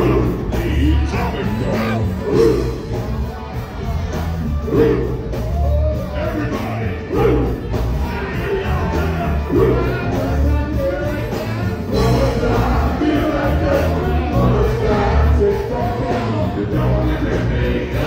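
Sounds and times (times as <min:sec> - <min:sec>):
heavy bass and drum beat: 0:00.0 - 0:18.0
live funk band: 0:00.0 - 0:18.0
people singing and shouting: 0:00.0 - 0:18.0.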